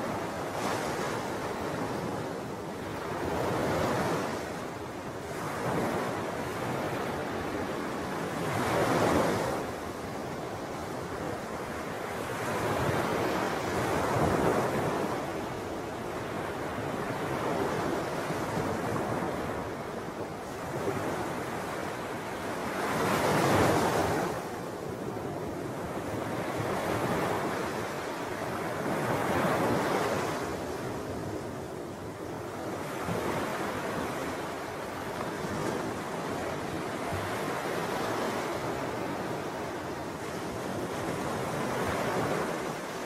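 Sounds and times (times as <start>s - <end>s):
small waves washing ashore: 0.0s - 43.0s.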